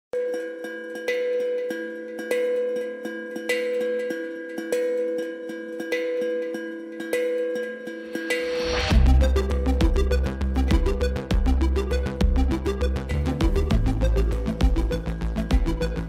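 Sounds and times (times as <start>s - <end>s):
held synth chord: 7.1s - 16.0s.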